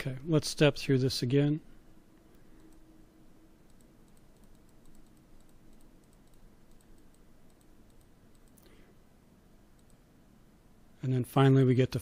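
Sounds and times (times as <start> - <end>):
computer mouse clicks: 2.3 - 2.8, 3.6 - 8.8, 9.7 - 10.0.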